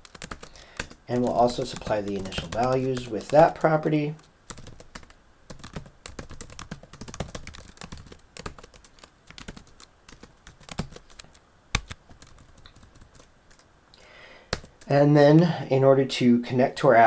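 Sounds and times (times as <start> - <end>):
typing on computer keyboard: 0.0 - 3.6, 4.5 - 13.7, 14.5 - 14.9.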